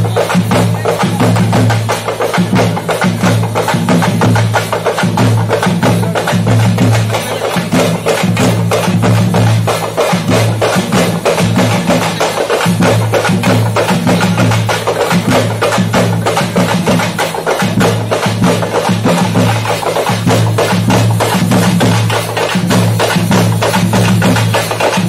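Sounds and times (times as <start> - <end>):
fast procession drumming: 0.0 - 25.0.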